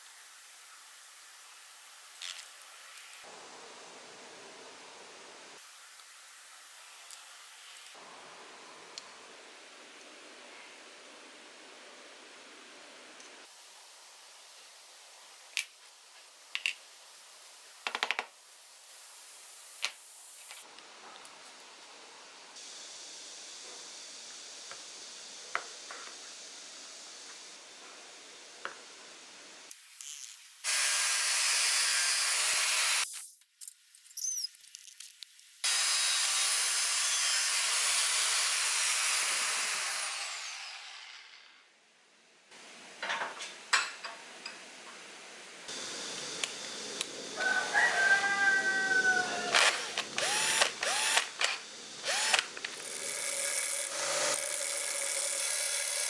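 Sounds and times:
low steady hiss: 0.0 - 30.6
angle grinder cutting steel: 30.0 - 33.1, 35.6 - 41.6, 49.4 - 56.0.

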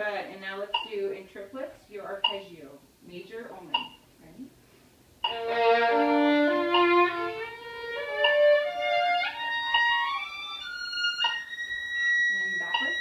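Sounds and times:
solo violin playing: 5.3 - 13.0.

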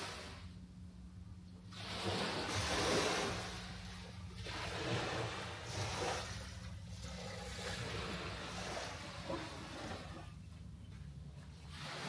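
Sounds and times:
ocean waves on rocky shore: 1.8 - 10.3.

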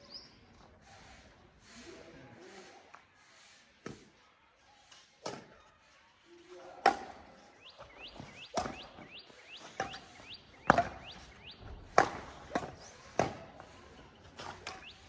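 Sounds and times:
rackets hitting shuttlecock: 6.8 - 13.7, 14.4 - 15.0
bird chirping: 7.4 - 12.0, 14.1 - 15.0.

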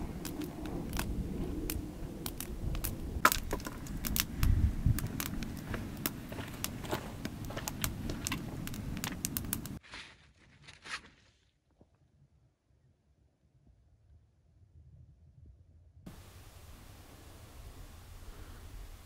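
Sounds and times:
campfire crackling and popping: 0.0 - 9.8
low rumble: 0.0 - 9.8.

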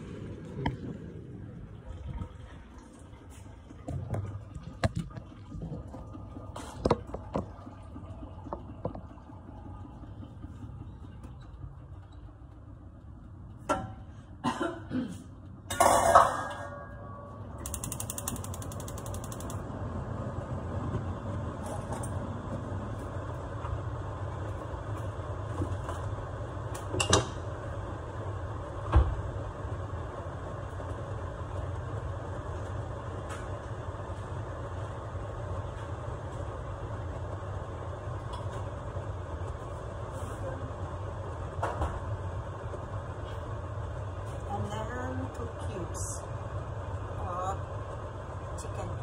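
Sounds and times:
metal pans clanking: 15.7 - 17.0
gas burner rushing: 15.7 - 48.9.

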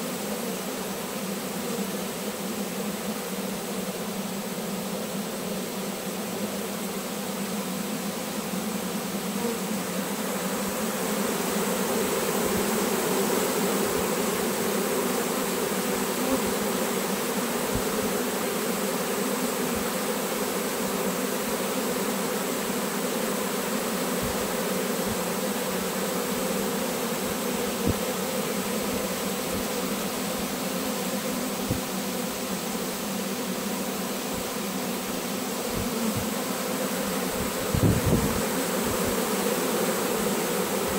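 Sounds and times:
honeybees buzzing: 0.0 - 40.9.

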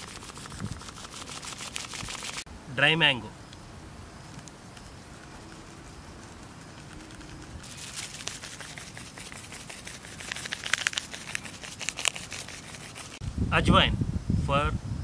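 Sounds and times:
plastic packet crinkling: 7.0 - 13.2.

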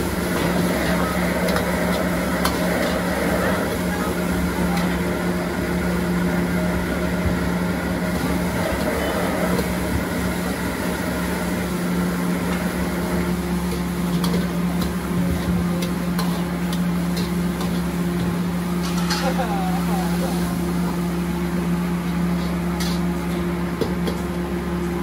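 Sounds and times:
burner blower fan humming: 0.0 - 25.0.

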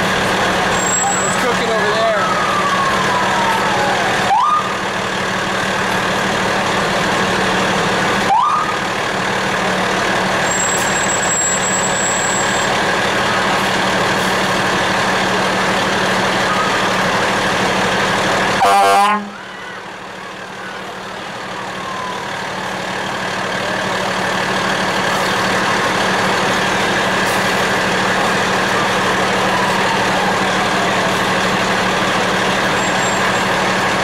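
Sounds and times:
fire truck engine running: 0.0 - 34.0
siren winding down: 0.7 - 4.8, 8.2 - 8.8, 20.6 - 23.0, 28.4 - 33.6
short rising siren whoops: 2.0 - 4.7, 21.6 - 22.7.

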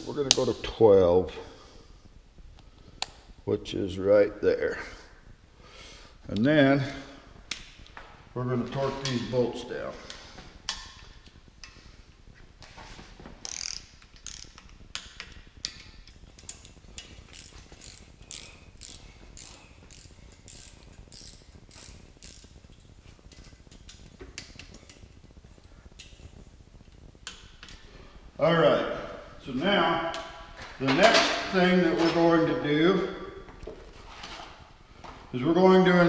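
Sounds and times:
ratchet wrench clicking: 13.4 - 22.6.

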